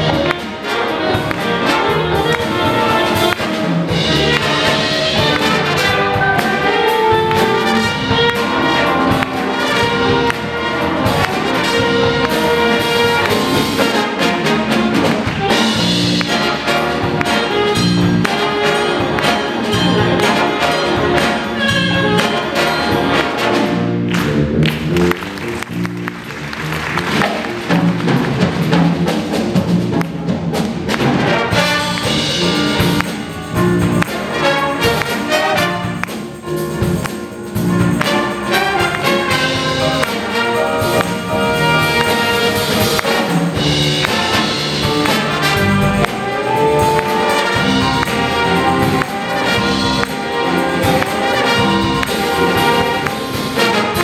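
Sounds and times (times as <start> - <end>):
big band playing funk-jazz: 0.0 - 54.0
drums and cymbals: 0.0 - 54.0.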